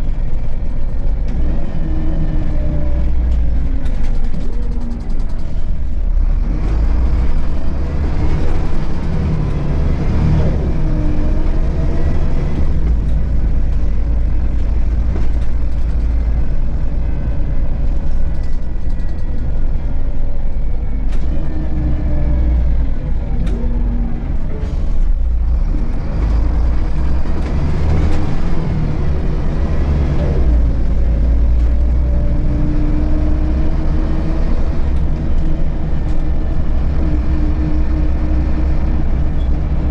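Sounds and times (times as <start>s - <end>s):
bus diesel engine drone: 0.0s - 39.9s.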